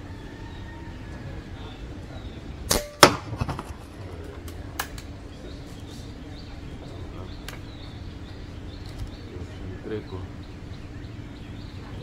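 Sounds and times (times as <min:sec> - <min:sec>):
air rifle firing: 0:02.7 - 0:03.8.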